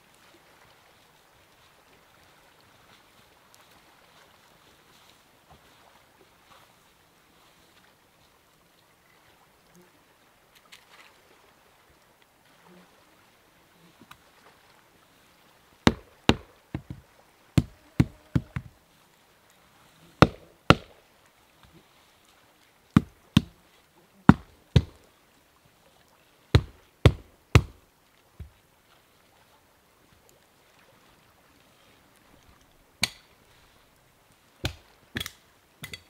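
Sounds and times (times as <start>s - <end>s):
axe chopping wood: 15.9s - 17.0s, 17.6s - 18.7s, 20.2s - 21.0s, 23.0s - 23.6s, 24.3s - 25.0s, 26.6s - 27.8s, 33.0s - 33.3s, 34.6s - 36.0s.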